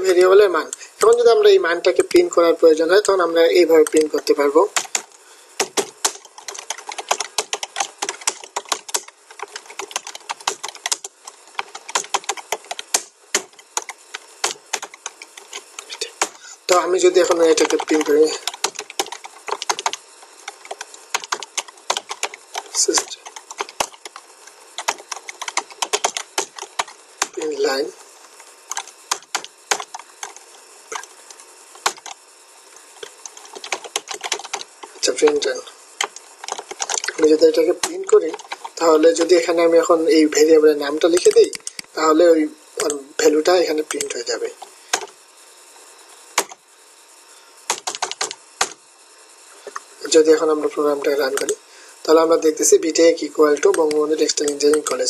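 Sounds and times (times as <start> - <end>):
computer keyboard keystrokes: 4.8 - 16.4, 17.3 - 24.2, 24.8 - 27.4, 28.7 - 31.1, 31.8 - 32.2, 33.0 - 35.4, 36.0 - 37.2, 37.8 - 38.7, 47.7 - 48.8.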